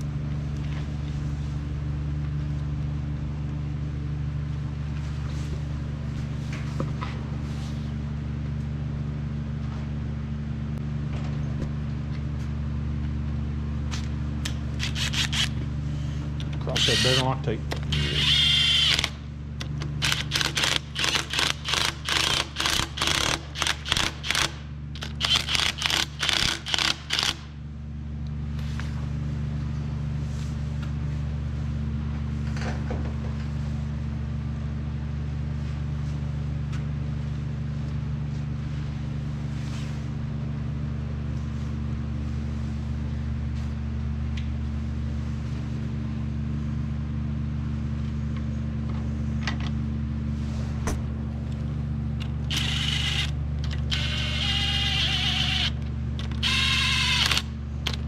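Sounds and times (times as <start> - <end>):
steady low hum: 0.0 - 58.0
power tool running in bursts: 16.7 - 19.2, 52.5 - 57.5.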